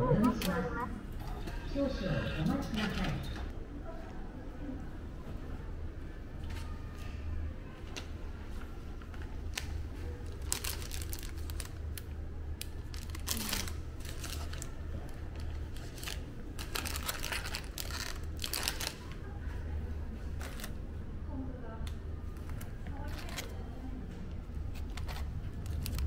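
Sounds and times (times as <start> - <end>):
steady low hum: 0.0 - 26.0
plastic wrapping crinkling: 9.5 - 19.2, 24.7 - 26.0.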